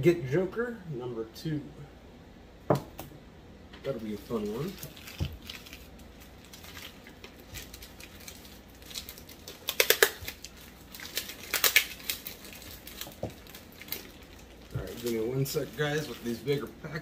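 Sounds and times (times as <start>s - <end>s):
tape peeling crackle: 3.9s - 16.7s.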